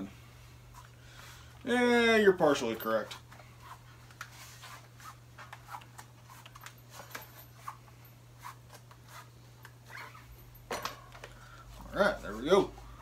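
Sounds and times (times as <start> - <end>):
steady low hum: 0.0 - 13.0
rubber rubbing against rim: 3.5 - 7.8, 8.4 - 10.3.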